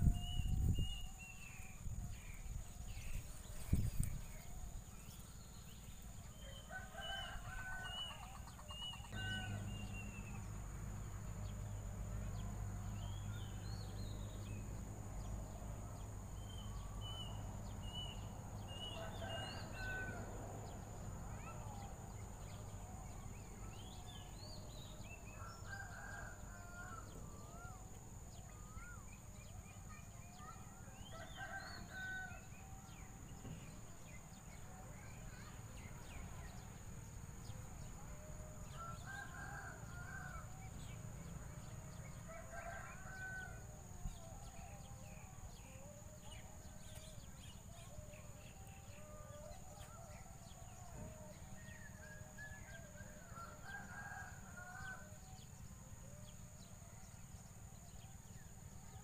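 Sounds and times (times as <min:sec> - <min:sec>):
rooster crowing: 0:06.6 - 0:10.3, 0:18.8 - 0:20.3, 0:25.2 - 0:27.7, 0:38.7 - 0:40.6, 0:51.5 - 0:55.4.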